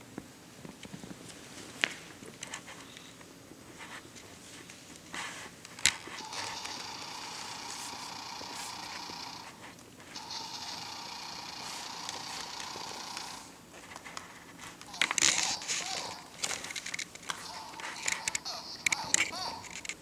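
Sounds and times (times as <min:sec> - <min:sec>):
toy speaker sounding: 0:10.2 - 0:13.5, 0:14.9 - 0:16.4, 0:17.4 - 0:19.8.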